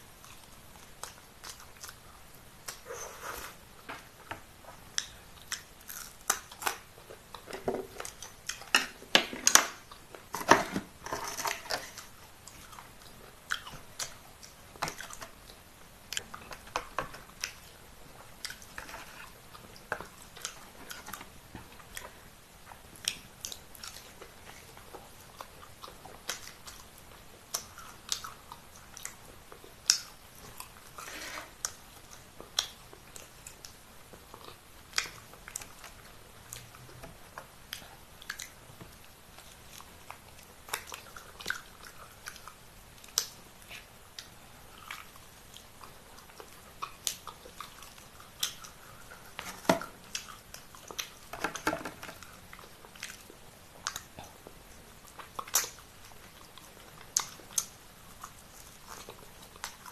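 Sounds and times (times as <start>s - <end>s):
person chewing food: 0.2s - 59.9s.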